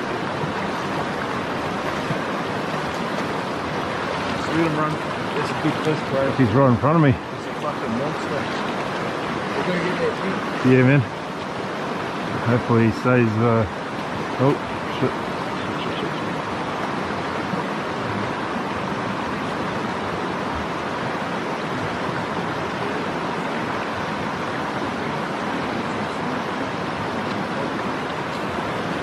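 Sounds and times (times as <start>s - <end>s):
stream rushing over rocks: 0.0s - 29.0s.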